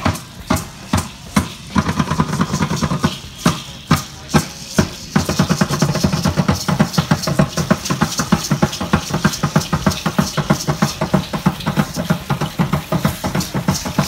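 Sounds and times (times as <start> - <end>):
shaken rattles: 0.0 - 14.0
steady drum beat: 0.0 - 14.0.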